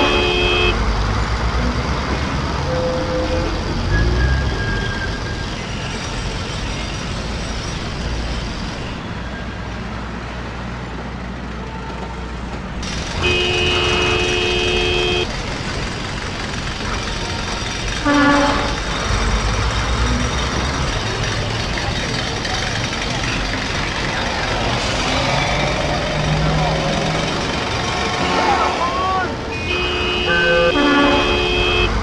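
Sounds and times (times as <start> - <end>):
vehicle horn: 0.0 - 0.8, 13.2 - 15.3, 18.0 - 18.8, 28.1 - 32.0
street traffic: 0.0 - 32.0.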